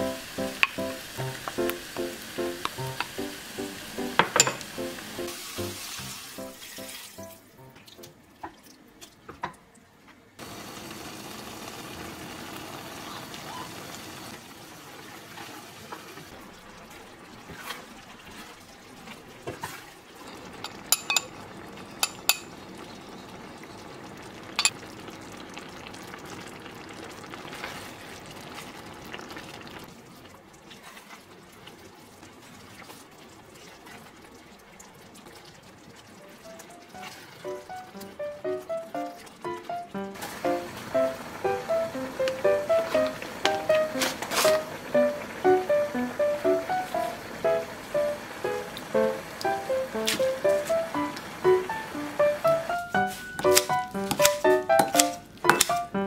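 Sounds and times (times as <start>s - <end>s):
pot simmering with bubbling hiss: 0.0s - 6.7s, 10.4s - 55.9s
soft background music: 0.0s - 8.3s, 36.2s - 56.0s.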